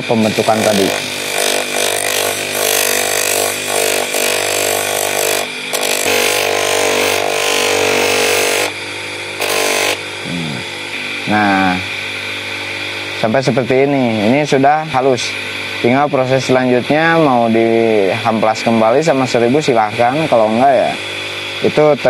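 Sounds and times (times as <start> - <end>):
sanding wheel motor hum: 0.0 - 10.2
wood grinding on sander: 0.1 - 8.8, 9.4 - 10.0.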